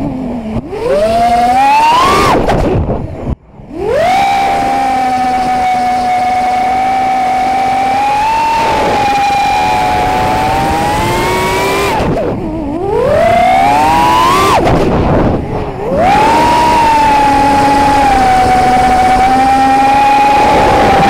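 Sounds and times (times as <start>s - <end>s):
quadcopter motors whining: 0.0s - 21.0s.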